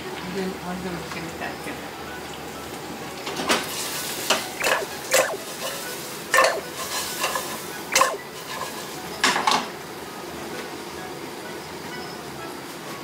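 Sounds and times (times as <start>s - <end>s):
light sizzle: 0.0s - 10.0s.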